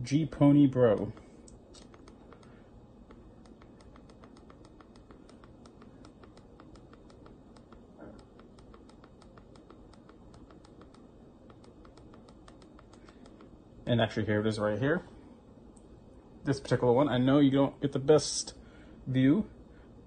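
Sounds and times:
faint keyboard clicking: 0.8 - 13.6.

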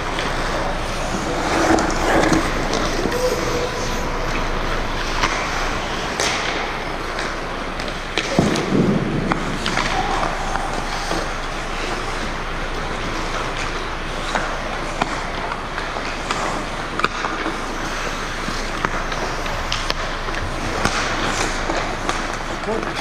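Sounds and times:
sticks and puck clacking: 0.0 - 23.0
skates scraping on ice: 0.1 - 23.0.

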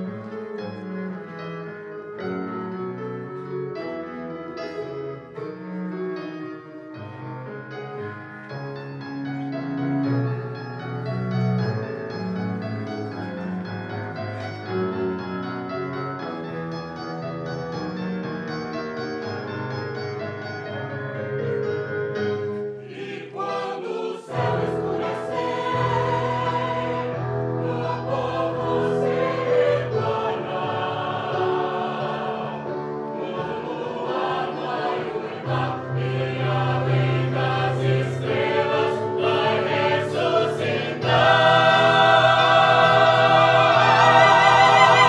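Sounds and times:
instrumental accompaniment: 0.0 - 45.0
group of voices singing: 22.8 - 45.0.

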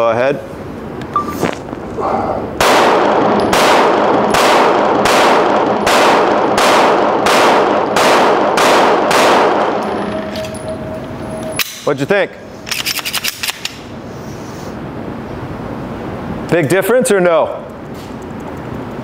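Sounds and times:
pistol shots ringing indoors: 2.6 - 11.8.

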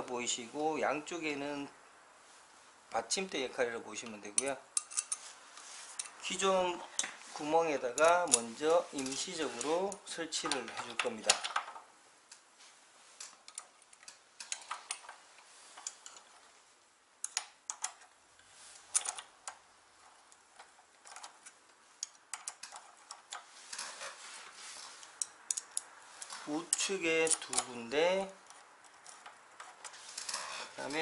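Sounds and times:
small metal clicks of bolts: 4.0 - 5.2, 13.2 - 15.2, 17.2 - 18.1, 18.8 - 19.6, 20.3 - 23.9, 25.0 - 27.8.

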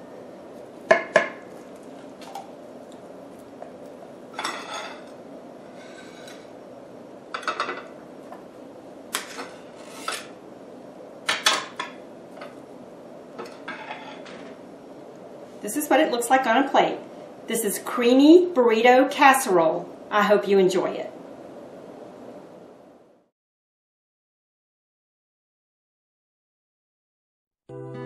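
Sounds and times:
knife scraping ceramic dish: 4.4 - 5.1, 5.7 - 6.5, 9.2 - 10.3, 13.4 - 14.4.

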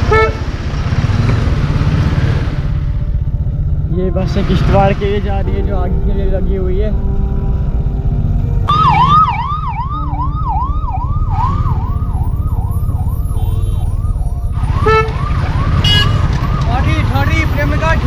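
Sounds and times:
motorcycle engine running: 0.0 - 18.0
electronic siren yelping: 8.7 - 17.1.

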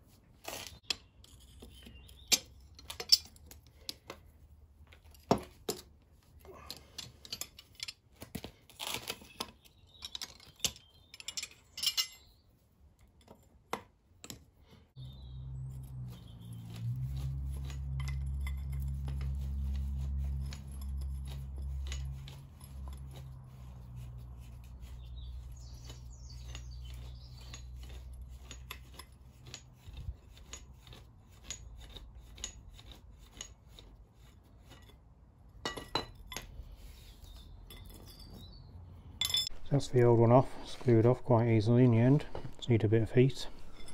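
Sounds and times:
spanners clicking on metal: 2.3 - 4.0, 6.6 - 8.0, 10.0 - 12.2, 17.2 - 23.8.

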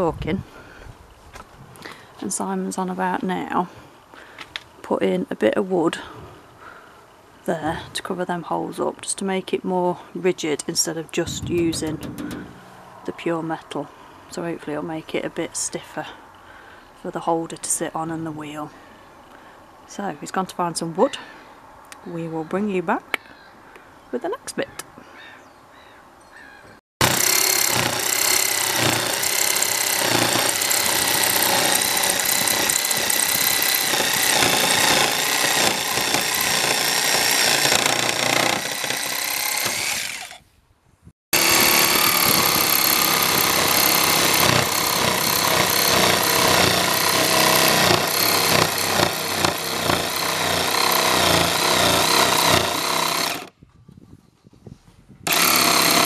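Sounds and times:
jigsaw cutting plywood: 11.4 - 12.6, 27.0 - 40.4, 41.4 - 53.5, 55.3 - 56.0.

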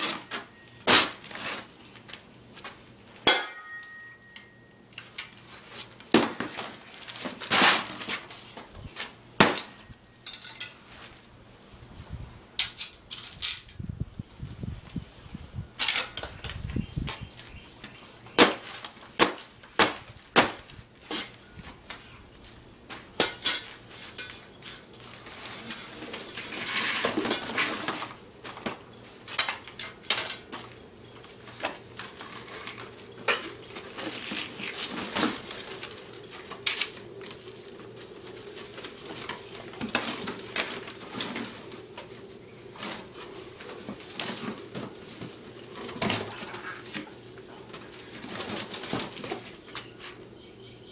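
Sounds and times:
cardboard tearing and crumpling: 5.8 - 8.4, 33.8 - 37.1
shovel hitting cardboard on concrete: 18.4 - 21.3.

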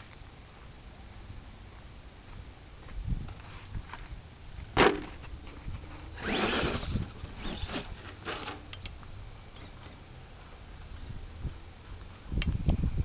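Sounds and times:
tyres scrabbling on dirt: 3.3 - 8.7
electric motor whining: 6.1 - 8.6.

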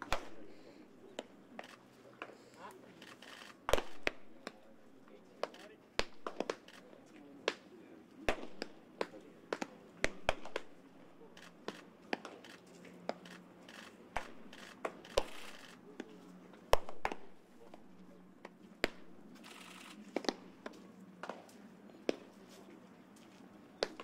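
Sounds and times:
baseballs smacking into gloves: 0.0 - 0.5, 3.7 - 4.7, 5.4 - 10.9, 11.5 - 12.4, 14.1 - 15.4, 16.0 - 17.8, 18.4 - 19.2, 20.0 - 22.3, 23.8 - 24.0.

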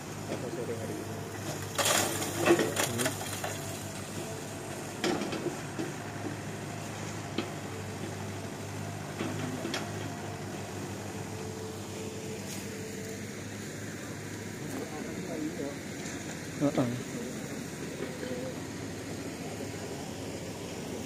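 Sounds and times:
excavator diesel engine running: 0.0 - 21.0.

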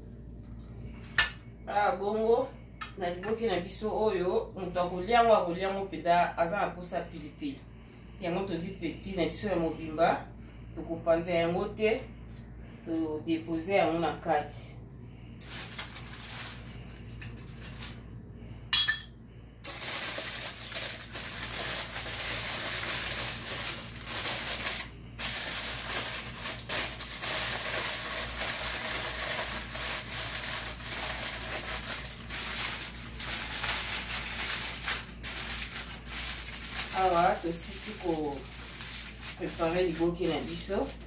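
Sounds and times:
aluminium foil crinkling: 15.4 - 18.0, 19.6 - 41.0
metal spoon clinking glass bowl: 18.8 - 19.1.

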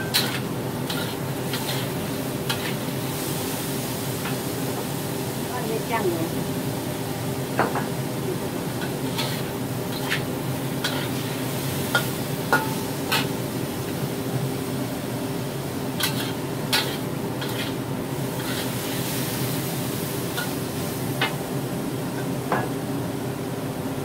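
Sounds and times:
metal spatula scraping a wok: 0.0 - 2.8, 8.8 - 11.3, 16.0 - 19.2
food frying in oil: 0.0 - 24.0.

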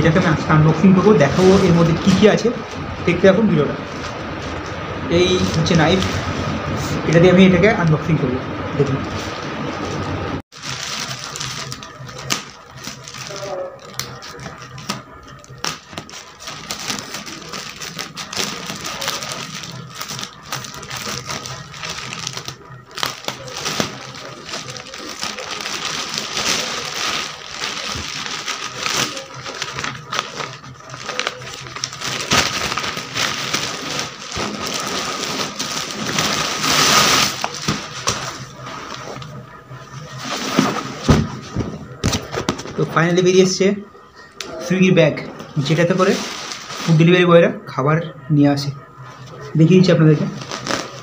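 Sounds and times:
plastic mailer crinkling: 3.9 - 7.6, 10.5 - 43.1, 49.0 - 51.0
plastic tearing: 10.6 - 39.4, 50.2 - 51.0.

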